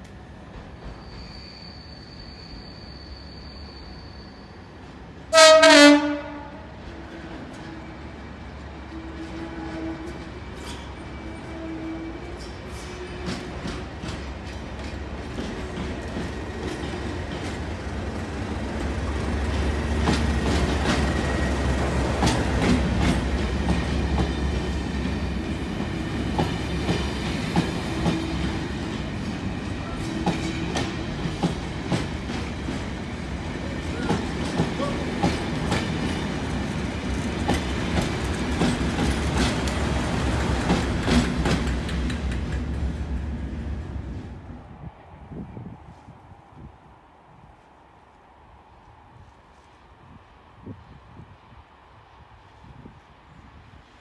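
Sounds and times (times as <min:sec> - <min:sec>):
diesel locomotive engine rumble: 0:04.7 - 0:46.7
wheels clicking over rail joints: 0:33.8 - 0:43.3.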